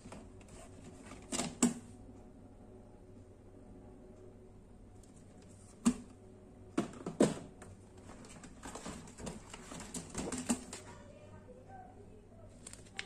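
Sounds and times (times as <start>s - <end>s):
plastic packaging crinkling: 12.6s - 13.0s.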